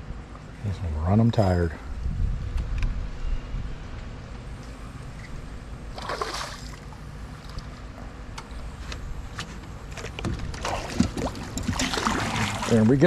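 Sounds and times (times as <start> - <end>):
steady low rumble: 0.0 - 13.0
water splashing and sloshing: 5.8 - 13.0.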